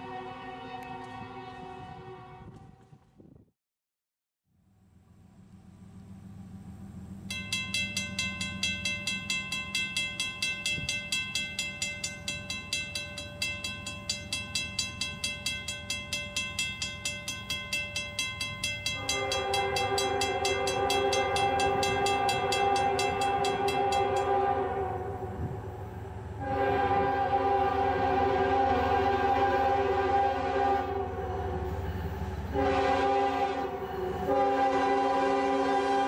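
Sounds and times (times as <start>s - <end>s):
locomotive air horn: 0.0s - 2.9s, 18.9s - 25.7s, 26.3s - 36.0s
crossing warning bell ringing: 7.1s - 35.9s.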